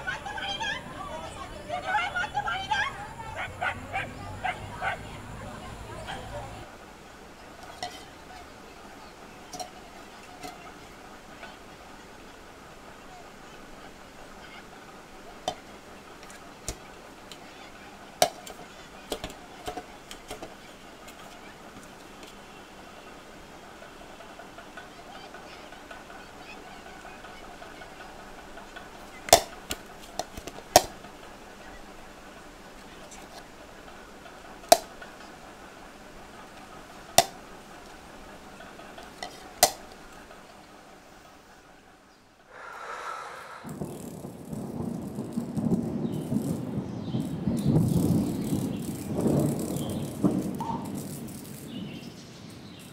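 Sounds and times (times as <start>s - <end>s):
dough kneaded in steel bowl: 7.4s - 14.0s.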